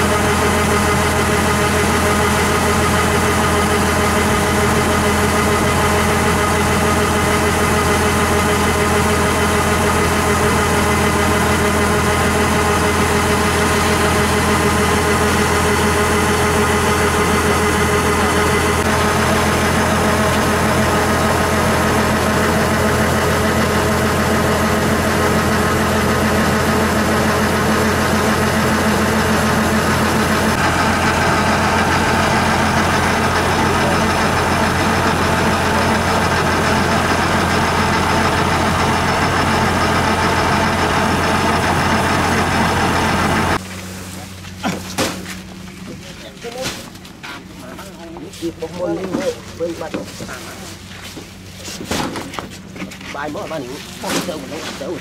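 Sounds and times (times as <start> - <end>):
machinery whining: 0.0 - 44.6
combine harvester diesel drone: 0.0 - 55.0.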